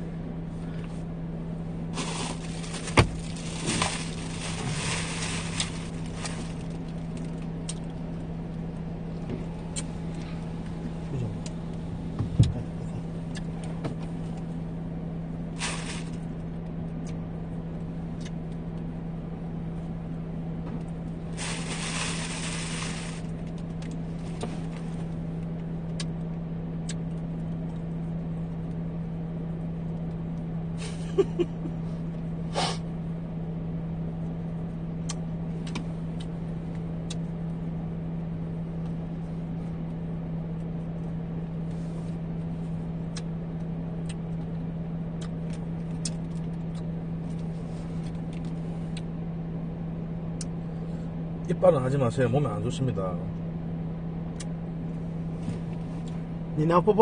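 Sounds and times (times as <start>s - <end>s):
car cabin hum: 0.0s - 26.1s, 31.0s - 32.7s, 34.1s - 53.5s
rustles and clicks: 2.0s - 7.5s
hiss: 21.4s - 23.2s.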